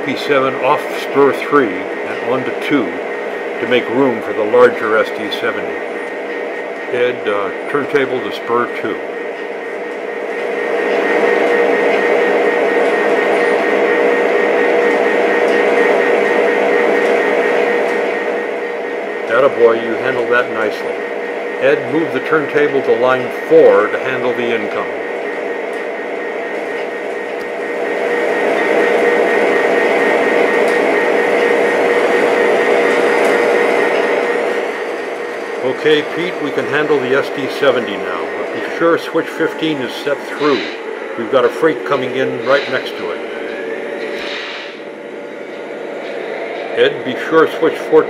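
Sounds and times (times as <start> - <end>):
model train motor hum and whine: 0.0 - 48.0
train rolling on track: 0.0 - 48.0.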